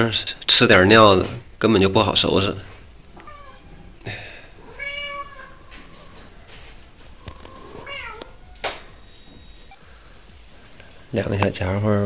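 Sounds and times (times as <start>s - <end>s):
cat meowing: 3.2s - 9.0s.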